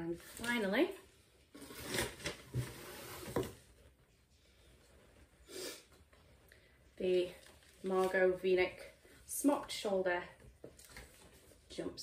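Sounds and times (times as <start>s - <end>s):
fabric rustling: 6.0s - 10.0s.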